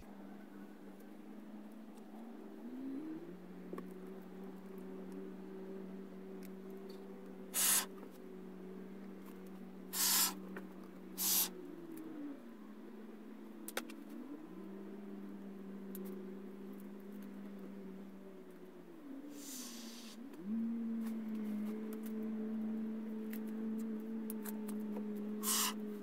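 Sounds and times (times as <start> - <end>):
steady low hum: 0.0 - 26.0
aerosol foam hissing: 7.6 - 7.9, 10.0 - 10.4, 11.2 - 11.5, 19.3 - 20.2, 25.4 - 25.8.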